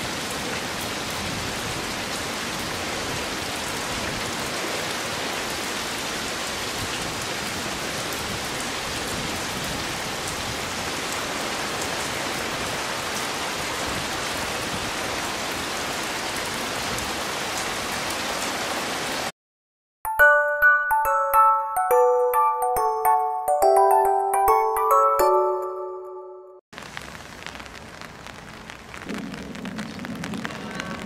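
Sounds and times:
heavy rain falling: 0.0s - 19.3s, 26.8s - 31.0s.

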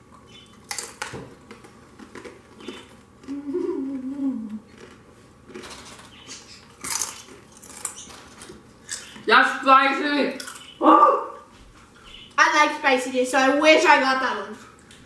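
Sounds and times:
tortilla chips crunching: 0.6s - 3.5s, 4.6s - 9.2s
person humming: 3.2s - 4.7s.

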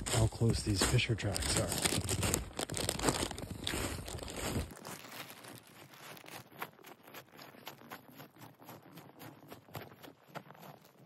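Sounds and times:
boots crunching through snow: 0.0s - 8.7s
rustling with low rumble: 0.0s - 11.0s.

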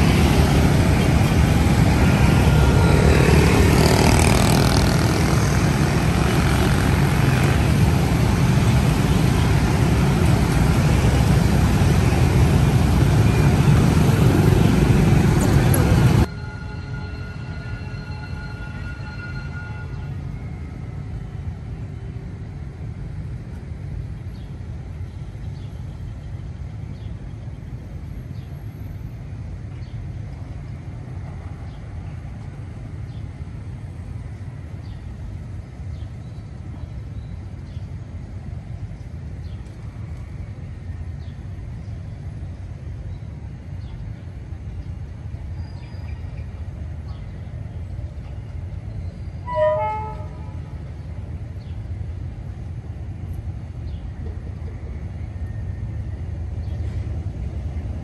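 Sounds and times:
low outdoor rumble: 0.0s - 16.3s
locomotive horn toot: 16.3s - 20.3s, 49.4s - 50.8s.

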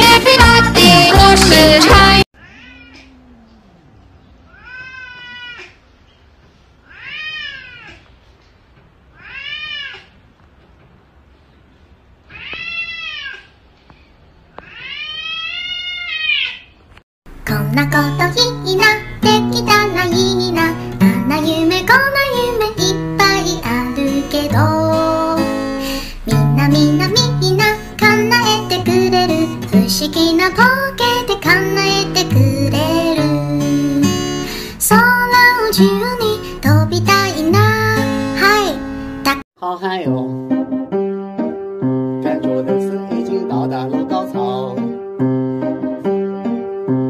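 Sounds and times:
person singing with acoustic guitar: 0.0s - 2.2s, 17.4s - 39.4s
cats meowing: 2.4s - 5.9s, 6.8s - 8.2s, 9.1s - 10.2s, 12.3s - 13.6s, 14.5s - 16.9s
lower cat call: 2.4s - 5.9s.

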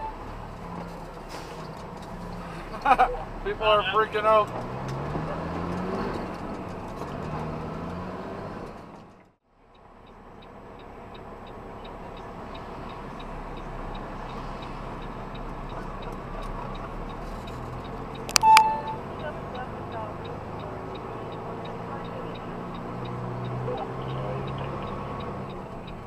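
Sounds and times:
horn-like tone: 0.0s - 0.3s, 18.3s - 19.2s
road noise: 0.0s - 26.0s
vehicle engine pulling: 0.0s - 26.0s
turn signal clicking: 8.6s - 26.0s.

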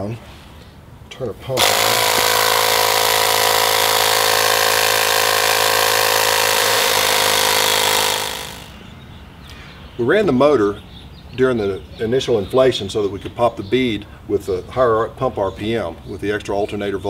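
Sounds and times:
air compressor humming and hissing: 1.6s - 8.8s.

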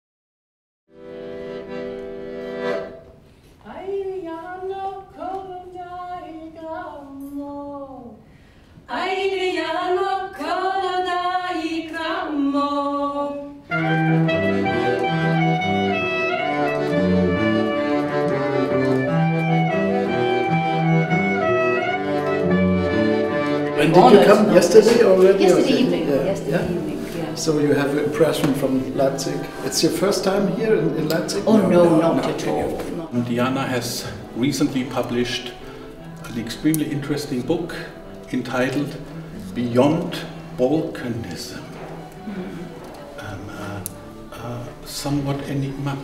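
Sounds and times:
accordion: 0.9s - 3.3s, 13.5s - 46.0s
voices singing: 8.9s - 41.3s
cello: 11.3s - 46.0s
clarinet: 13.1s - 27.1s.

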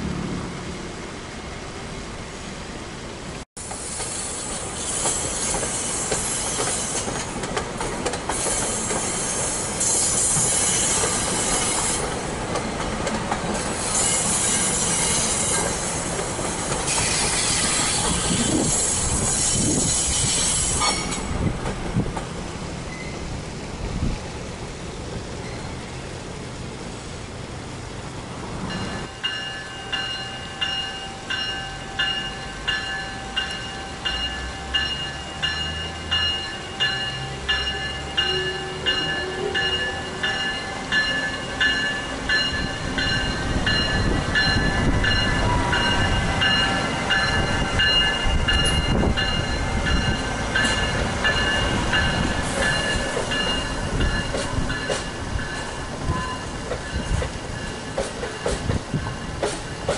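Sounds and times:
locomotive passing: 0.0s - 59.9s
train wheels rumbling and clattering: 3.6s - 30.8s, 31.4s - 59.9s
train bell ringing: 28.7s - 59.4s.

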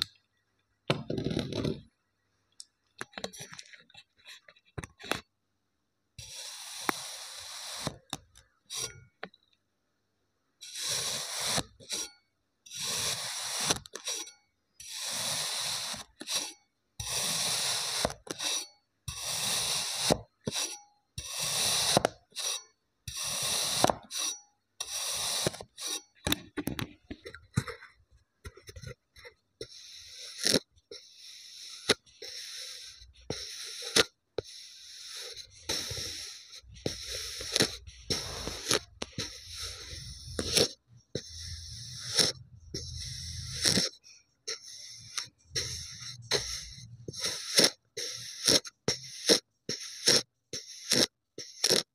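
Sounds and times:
sand scraped with plastic stick: 6.2s - 8.1s, 10.6s - 12.1s, 12.7s - 14.3s, 19.2s - 26.1s, 29.6s - 51.9s.

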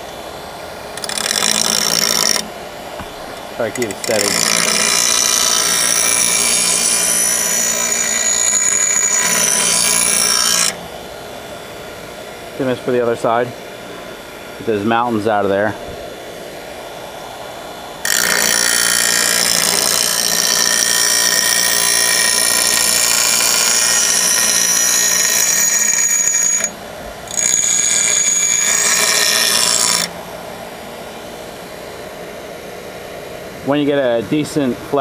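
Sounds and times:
grinder motor hum: 0.8s - 13.4s, 18.0s - 32.4s
blade grinding on grinder wheel: 1.0s - 2.5s, 3.7s - 10.8s, 18.0s - 30.1s.

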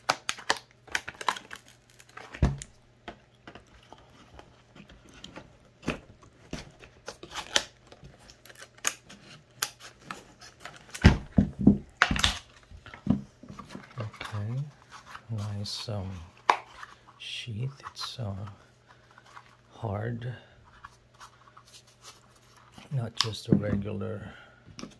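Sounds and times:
plastic packaging crinkling: 0.0s - 11.3s.

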